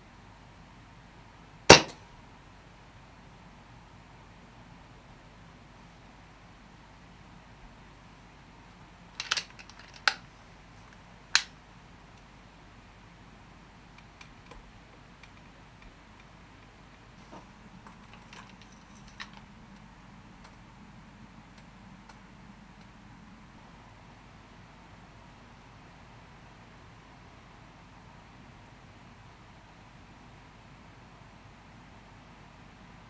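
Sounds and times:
faint steady hiss: 0.0s - 33.0s
clicks and taps of handled gear: 9.2s - 10.3s, 14.0s - 20.6s.

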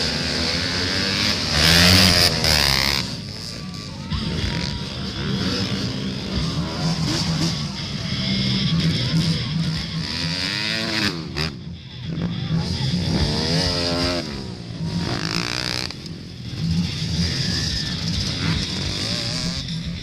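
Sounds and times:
dirt bike engines revving: 0.0s - 20.0s.

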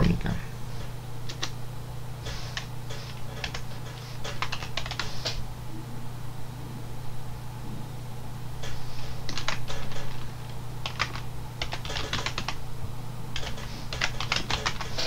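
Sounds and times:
steady low hum: 0.0s - 15.0s
computer keyboard typing: 1.3s - 1.6s, 2.5s - 5.4s, 9.3s - 12.6s, 13.4s - 15.0s.

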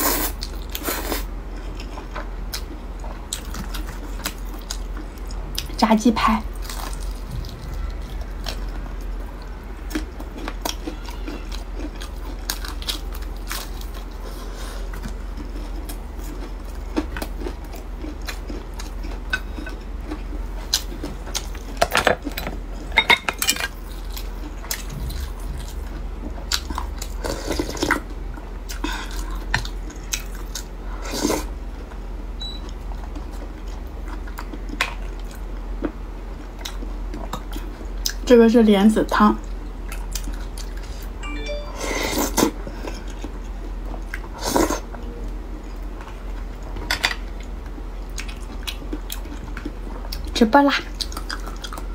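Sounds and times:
low steady hum: 0.0s - 51.9s
crunchy chewing: 6.5s - 22.9s, 47.4s - 51.9s.

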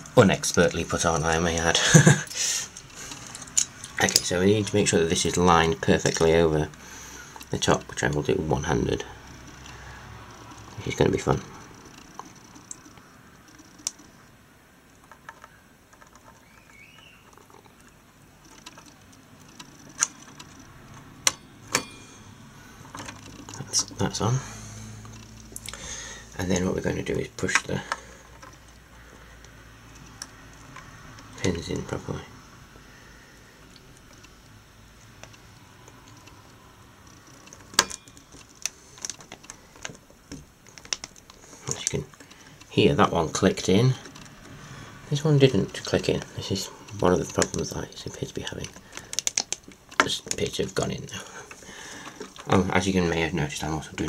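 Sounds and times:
plastic fastener snapping: 48.6s - 50.5s.

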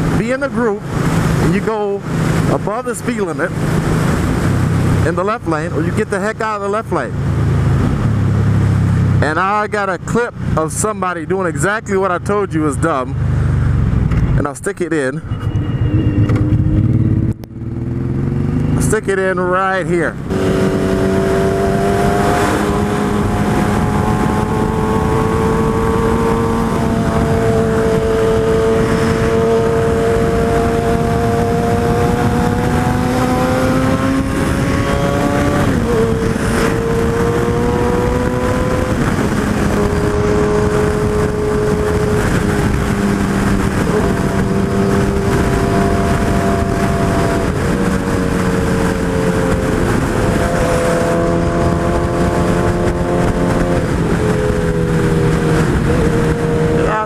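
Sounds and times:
wind noise: 0.0s - 6.0s, 7.1s - 9.2s, 15.2s - 19.2s, 20.0s - 57.0s
motorcycle engine running: 20.2s - 57.0s.

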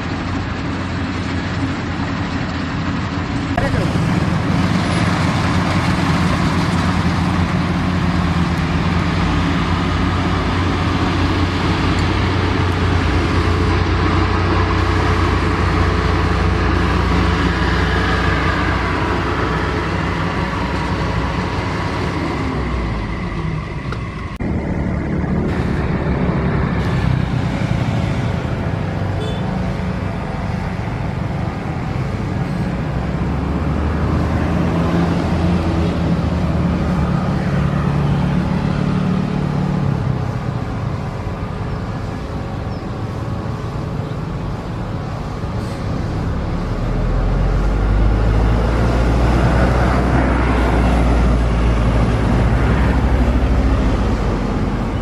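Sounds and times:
jet engines running: 0.0s - 33.6s.

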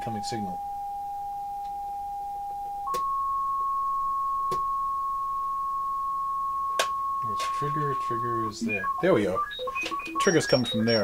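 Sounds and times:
steady synthesizer tone: 0.0s - 11.0s
sharp clicks: 8.7s - 11.0s.

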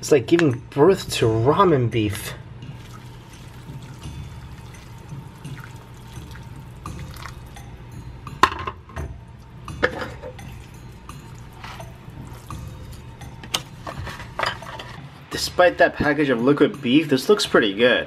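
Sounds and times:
hot water pouring into bowl: 2.7s - 7.6s, 10.4s - 13.2s
chopsticks stirring noodles: 10.5s - 15.0s.

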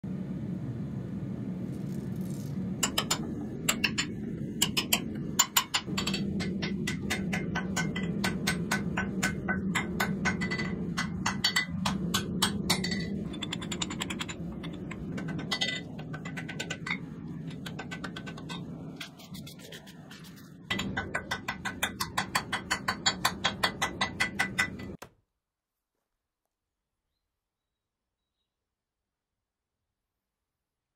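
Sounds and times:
steady low hum: 0.0s - 25.0s
hammer striking steel on anvil: 2.8s - 18.7s, 20.7s - 25.0s.

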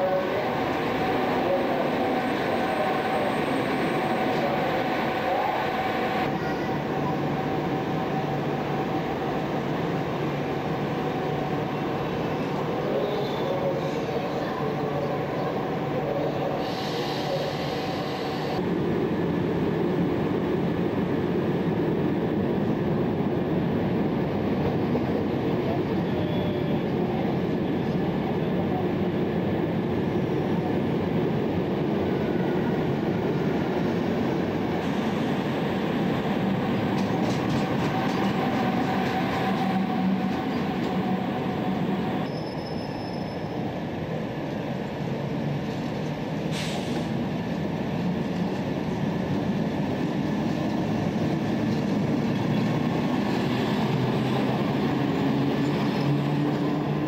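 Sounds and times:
train wheels rumbling on rail: 0.0s - 57.0s
faint thin squeal: 26.0s - 26.8s, 42.2s - 43.6s
electric locomotive humming: 26.2s - 42.6s.

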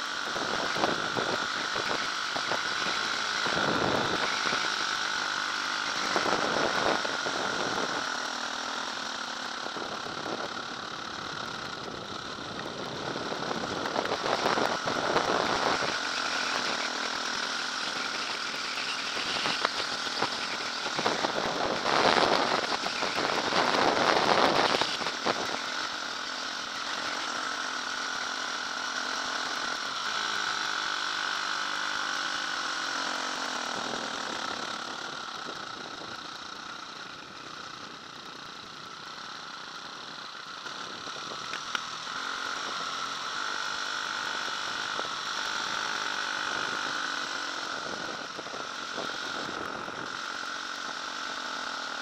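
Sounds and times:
dirt bike engine running: 0.0s - 52.0s
wind noise: 0.4s - 4.7s.

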